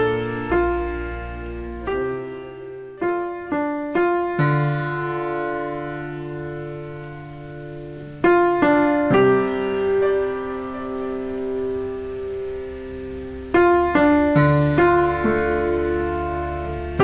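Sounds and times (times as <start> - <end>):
slow piano notes: 0.0 - 17.0.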